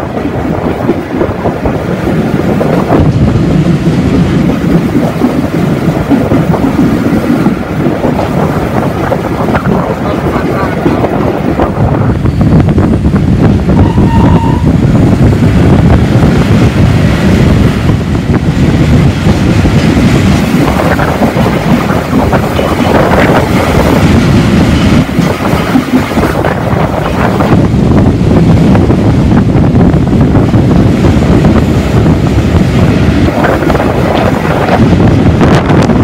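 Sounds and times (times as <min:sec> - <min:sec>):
train wheels rumbling on rails: 0:00.0 - 0:36.0
wind on microphone: 0:00.0 - 0:36.0.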